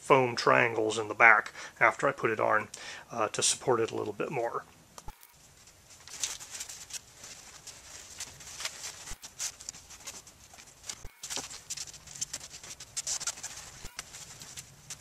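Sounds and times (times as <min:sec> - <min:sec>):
cloth rustling and swishing: 0:05.4 - 0:15.0.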